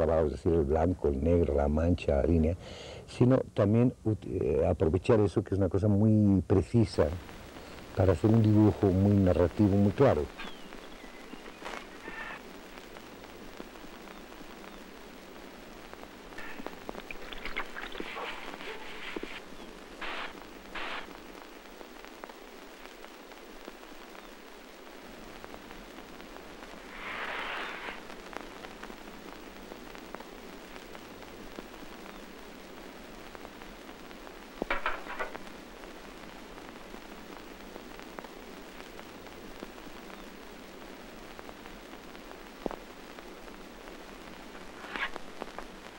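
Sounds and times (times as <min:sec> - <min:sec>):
old film soundtrack hiss: 0:00.0 - 0:45.9
scratchy noises: 0:11.6 - 0:12.4, 0:16.4 - 0:21.3, 0:26.8 - 0:28.3, 0:44.6 - 0:45.5.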